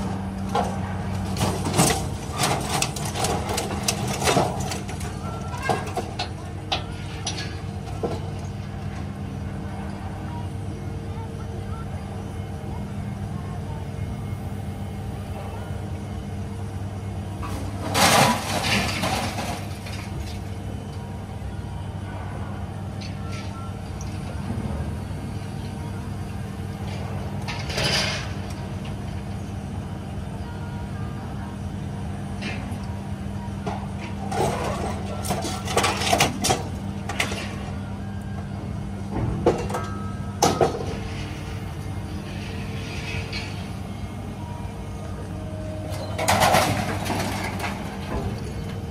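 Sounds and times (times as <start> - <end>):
crane grapple clanking on scrap metal: 0.0 - 9.2, 17.4 - 21.0, 22.9 - 29.6, 32.3 - 48.9
engine running: 0.0 - 48.9
scrap metal crashing onto pile: 0.5 - 8.2, 17.4 - 20.4, 34.3 - 37.6, 46.0 - 48.9.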